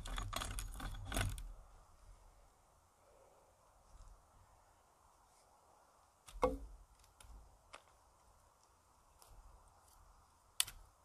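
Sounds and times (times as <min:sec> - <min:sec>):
sticks knocking on wooden posts: 0:06.3 - 0:07.9.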